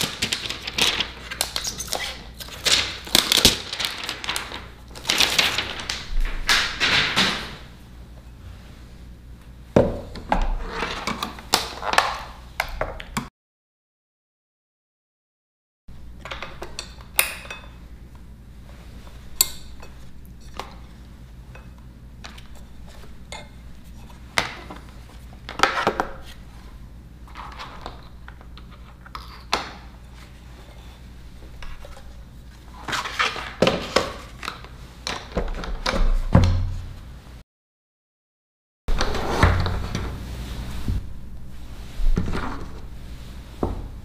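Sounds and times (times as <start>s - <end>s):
faint steady hum: 15.9s - 37.4s, 38.9s - 44.0s.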